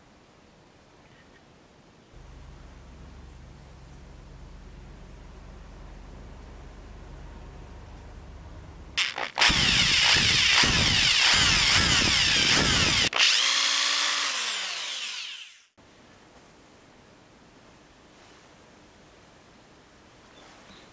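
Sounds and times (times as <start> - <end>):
electric drill boring into wood: 9.0 - 15.7.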